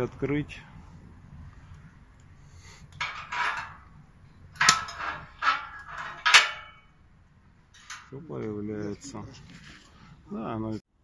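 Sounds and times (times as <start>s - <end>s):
metal clanks and scrapes: 2.8s - 7.0s, 7.7s - 8.2s.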